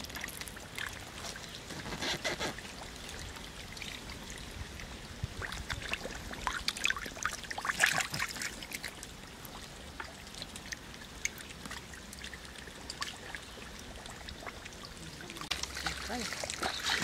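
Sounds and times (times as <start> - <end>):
muddy water trickling: 0.0 - 17.0
small splashes and wet pops: 5.3 - 17.0.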